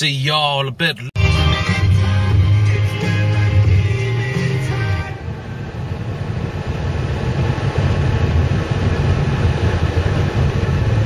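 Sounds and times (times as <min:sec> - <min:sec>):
car engine and tyre rumble: 0:05.1 - 0:11.0.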